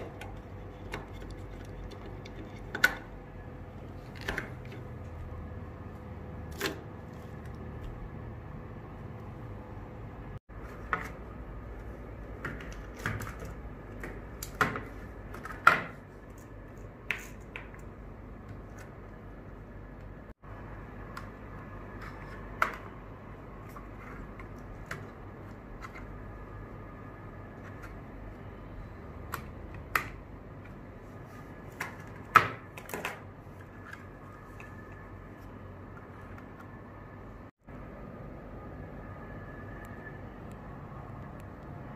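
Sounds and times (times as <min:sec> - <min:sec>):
low steady hum: 0:00.0 - 0:41.9.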